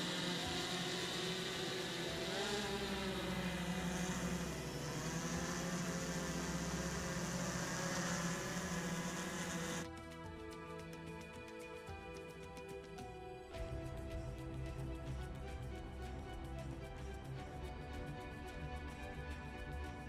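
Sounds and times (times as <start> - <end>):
drone propellers whirring: 0.0 - 9.9.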